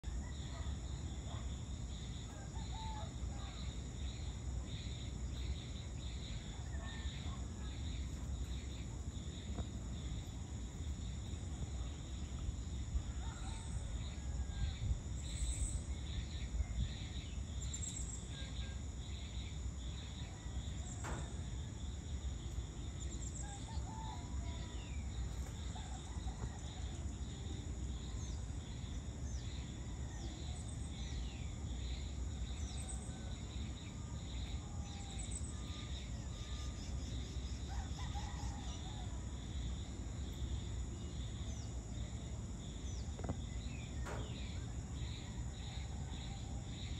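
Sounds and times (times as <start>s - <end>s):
insects trilling: 0.0s - 46.9s.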